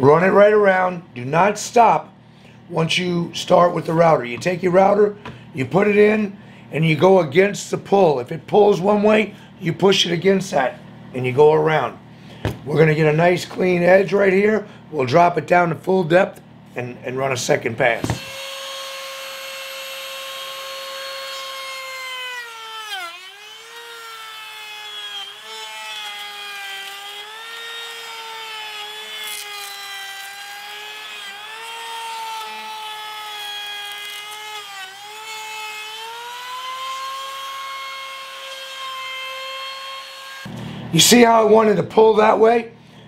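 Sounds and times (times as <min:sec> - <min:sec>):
router cutting wood: 0:17.9 - 0:40.6.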